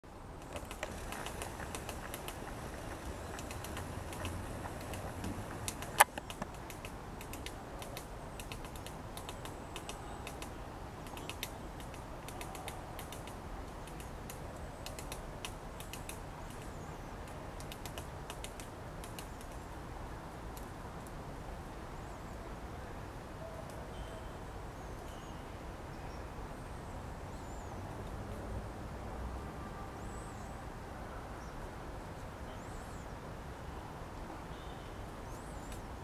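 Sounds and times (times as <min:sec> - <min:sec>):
woodpecker tapping bark: 0:00.4 - 0:14.1.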